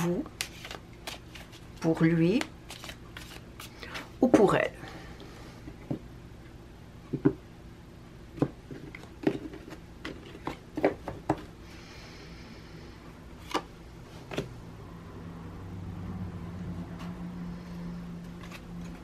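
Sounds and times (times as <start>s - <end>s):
cards sliding rustle: 0.4s - 1.7s, 2.3s - 4.1s, 18.2s - 19.0s.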